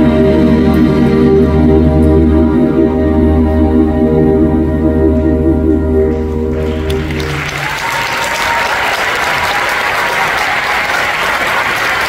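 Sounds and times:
held chord of accompaniment: 0.0 - 9.5
audience applauding: 6.5 - 12.0.

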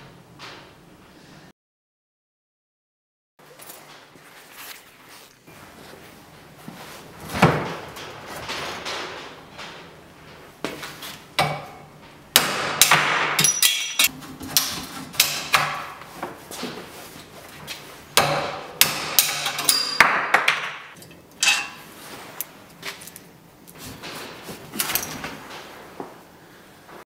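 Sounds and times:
hammer strikes on pipe: 12.4 - 16.0, 18.2 - 20.7.

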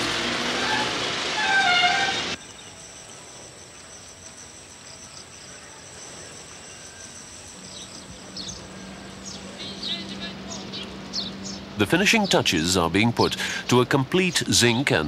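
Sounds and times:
bird chirps: 2.4 - 12.4.

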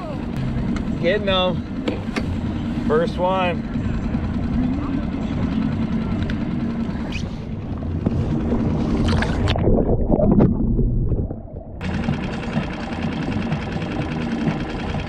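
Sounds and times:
steady pulsing whir: 0.0 - 10.1, 11.8 - 15.0
water sloshing and splashing: 7.0 - 11.9.

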